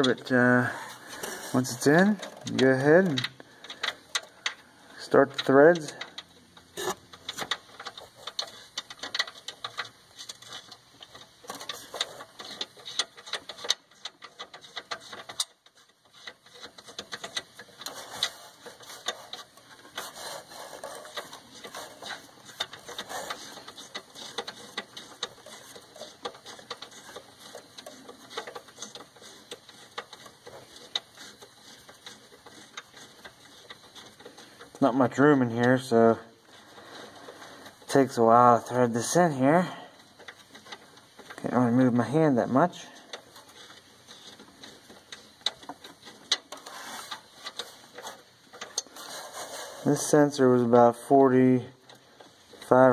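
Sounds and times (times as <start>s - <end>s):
sensor threads clicking: 0.0s - 52.9s
wire knocking against parts: 0.9s - 38.2s.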